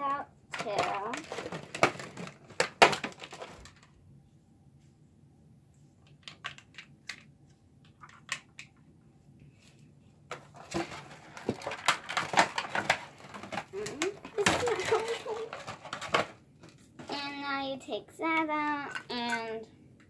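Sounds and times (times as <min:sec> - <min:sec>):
plastic tray being handled: 0:00.5 - 0:03.9, 0:10.3 - 0:17.2
plastic bag crinkling: 0:00.6 - 0:03.9, 0:10.5 - 0:16.3
plastic doll parts clicking: 0:06.1 - 0:08.8, 0:11.5 - 0:16.8.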